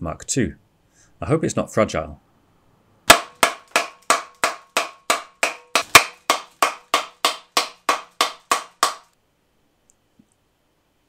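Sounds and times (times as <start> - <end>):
sharp knocks: 3.1 - 9.1.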